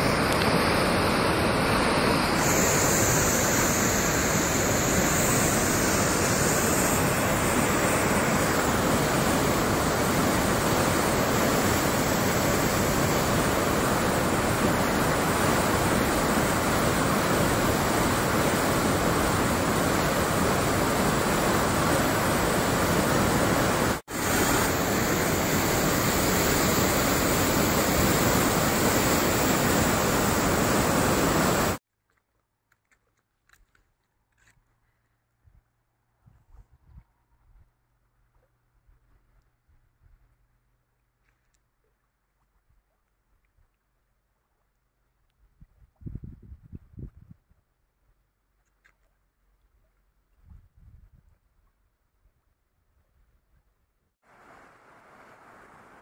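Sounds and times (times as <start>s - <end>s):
floodwater rushing: 0.0s - 31.8s, 54.2s - 56.0s.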